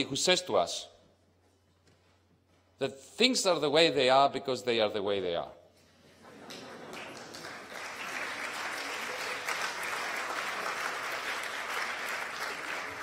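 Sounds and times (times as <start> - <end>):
audience applauding: 6.3 - 13.0.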